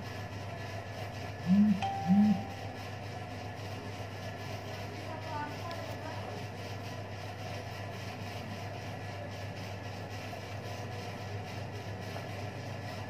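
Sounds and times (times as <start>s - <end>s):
low electric motor hum: 0.0s - 8.1s.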